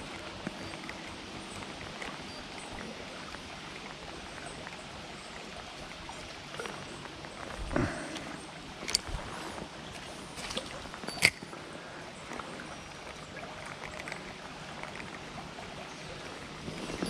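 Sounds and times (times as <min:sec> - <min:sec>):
river water flowing: 0:00.0 - 0:17.0.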